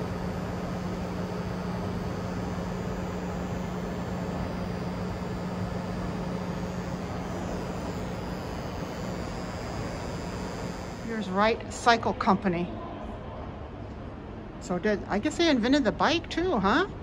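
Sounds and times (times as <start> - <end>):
constant low hum: 0.0 - 12.0.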